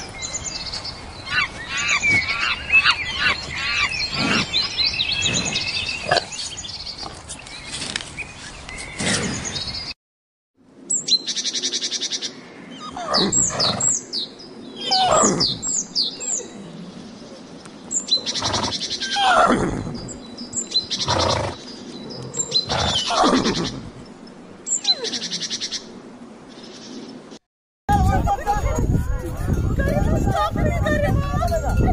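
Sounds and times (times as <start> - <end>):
birds chirping and trilling: 0.0 - 10.0, 10.8 - 27.4, 28.0 - 31.9
horse whinnying: 14.9 - 15.6, 18.3 - 20.0, 22.6 - 23.9.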